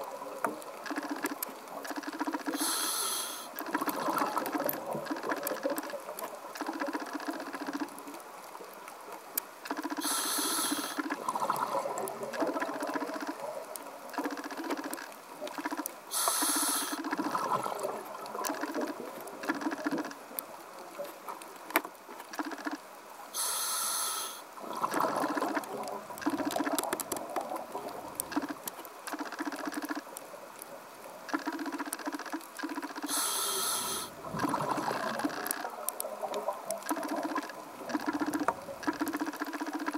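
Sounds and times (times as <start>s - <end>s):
scuba regulator inhalation hiss: 2.5s - 3.6s, 10.0s - 11.1s, 16.1s - 17.2s, 23.4s - 24.5s, 33.1s - 34.2s
fine crackle: 24.6s - 39.9s
exhalation bubbling: 33.7s - 35.6s.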